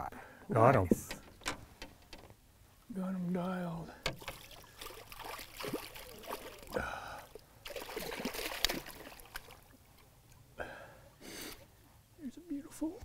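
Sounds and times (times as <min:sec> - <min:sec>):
water splashing and dripping: 0:04.0 - 0:10.4.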